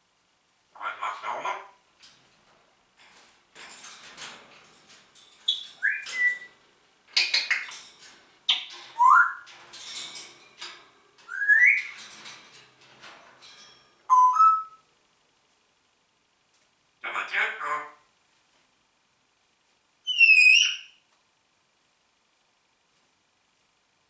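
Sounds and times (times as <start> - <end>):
harsh parrot calls: 0.8 - 1.8, 20.1 - 21.0
parrot whistling: 5.8 - 6.5, 9.0 - 9.5, 11.3 - 11.9, 14.1 - 14.8, 20.1 - 21.0.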